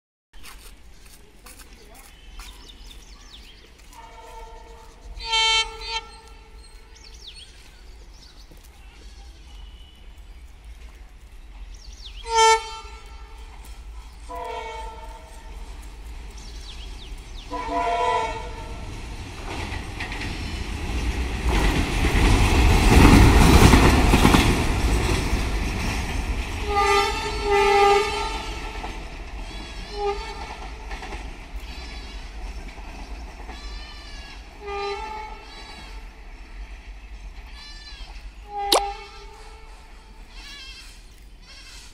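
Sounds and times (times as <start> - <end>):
train wheels on rails: 0.4 - 38.2
locomotive horn blasts: 4.0 - 6.5, 12.2 - 13.3, 14.3 - 15.4, 17.5 - 18.8.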